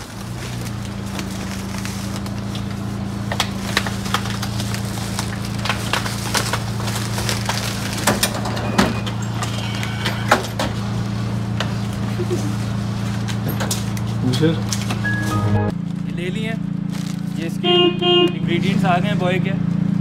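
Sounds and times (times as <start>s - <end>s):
plastic bag crinkling: 0.0s - 8.2s, 16.9s - 17.4s.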